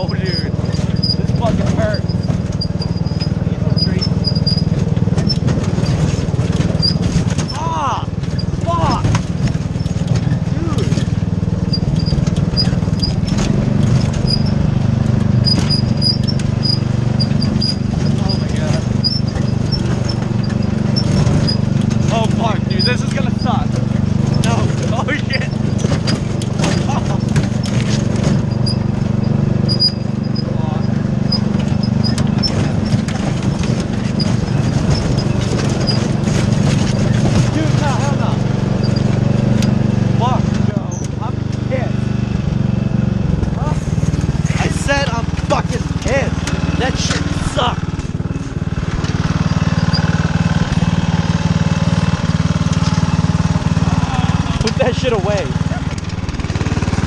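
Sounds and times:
short high squeaks: 0.0s - 7.6s, 8.2s - 37.6s, 38.7s - 40.0s, 43.6s - 50.7s
lawn mower engine running: 0.0s - 57.0s
wagon knocking and rattling: 0.0s - 57.0s.

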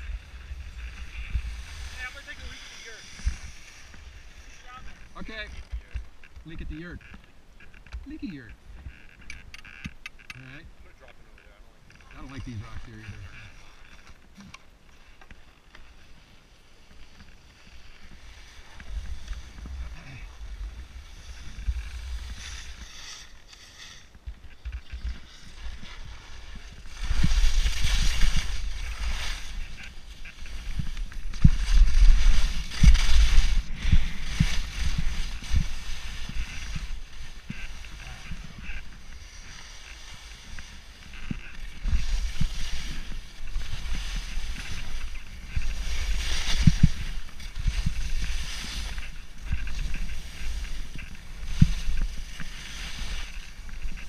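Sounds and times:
skis scraping on snow: 0.0s - 7.3s, 11.9s - 54.0s.

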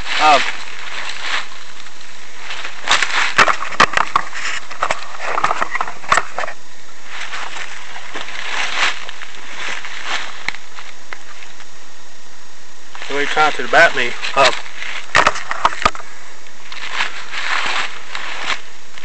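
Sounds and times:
rustling in dry leaves: 0.0s - 11.9s, 12.8s - 19.0s
steady hiss: 0.0s - 19.0s.

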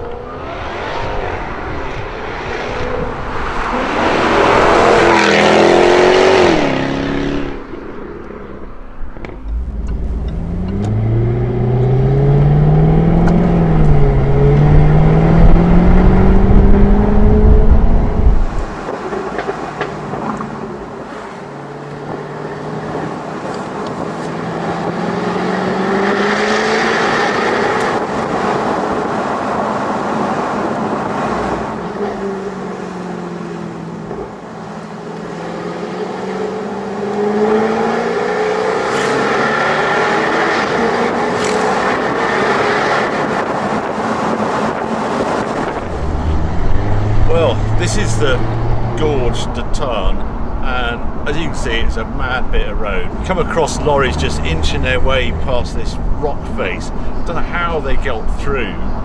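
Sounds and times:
car engine accelerating from inside: 9.4s - 18.7s.

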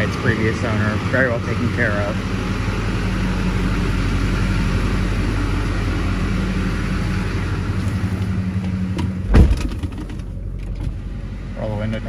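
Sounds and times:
diesel truck engine idling: 0.0s - 12.0s
truck door shutting: 8.2s - 11.1s.

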